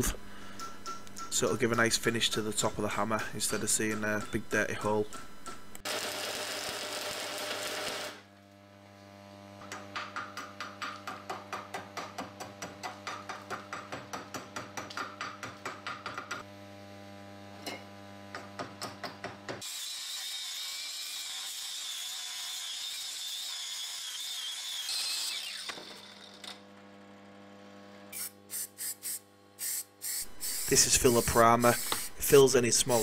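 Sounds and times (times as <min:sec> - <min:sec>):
power grinder sanding: 0:05.8 - 0:08.3, 0:19.6 - 0:26.5, 0:30.2 - 0:33.0.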